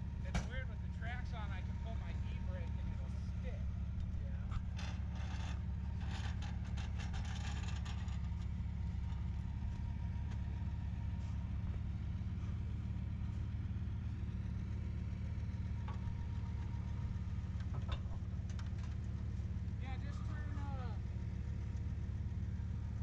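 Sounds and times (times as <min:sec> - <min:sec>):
pickup truck engine idling: 0:00.0 - 0:23.0
light clicks and rustling: 0:04.0 - 0:09.2, 0:17.6 - 0:19.2.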